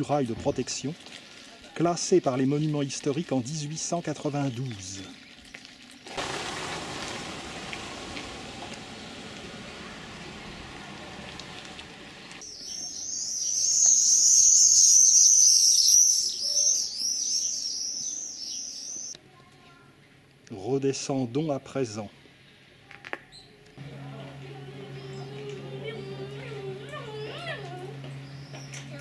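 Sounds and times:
shrill bird calls: 12.4s - 19.2s.

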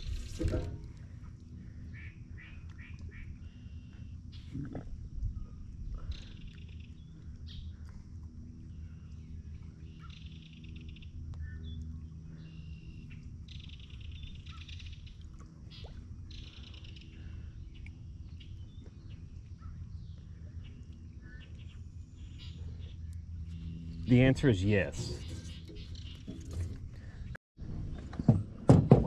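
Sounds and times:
steady low hum: 0.0s - 28.7s
birds trilling and chirping: 8.7s - 27.4s.

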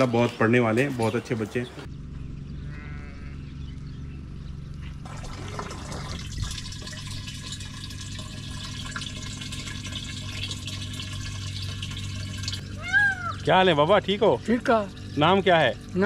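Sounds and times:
steady low hum: 1.8s - 16.0s
water pouring into plastic can: 5.0s - 16.0s.

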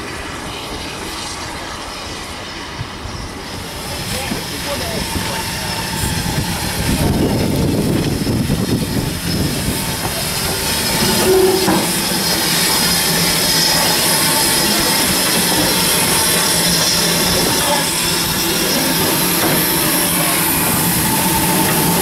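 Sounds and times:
train wheels rumbling on rails: 0.0s - 22.0s
wheel squeal: 10.2s - 22.0s.

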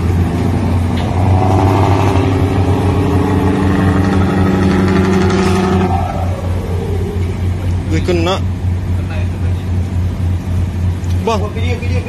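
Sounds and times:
boat engine droning: 0.0s - 12.0s
steady pitched tone: 0.5s - 9.4s.

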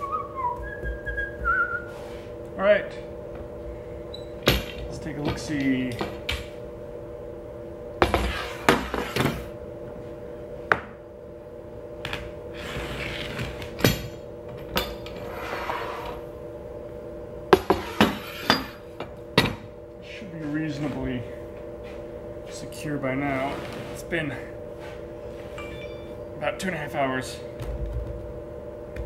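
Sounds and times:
steady hum: 0.0s - 29.0s
rustling scrapes: 23.3s - 24.1s.

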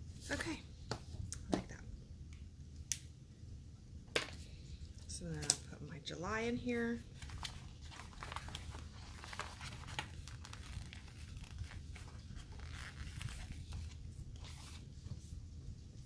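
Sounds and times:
paper sticker sheets crinkling: 7.1s - 14.9s.

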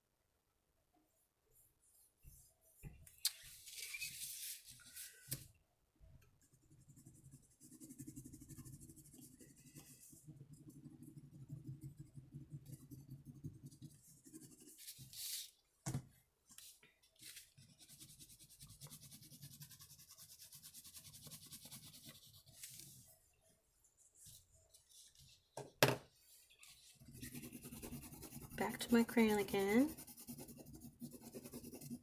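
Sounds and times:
crayon rubbing on paper: 27.0s - 32.0s.

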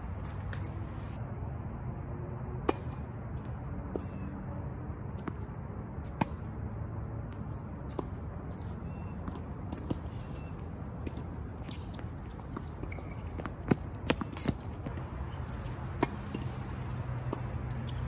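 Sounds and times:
tennis ball bouncing: 2.6s - 4.4s, 5.0s - 15.1s, 15.8s - 18.0s.

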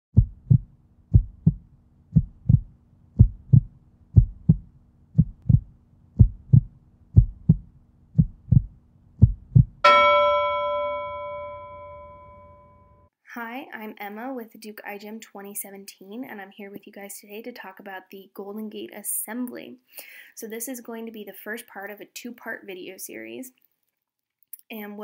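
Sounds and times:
heartbeat thumps: 0.1s - 10.0s
bell-like chime ringing: 9.8s - 13.0s.

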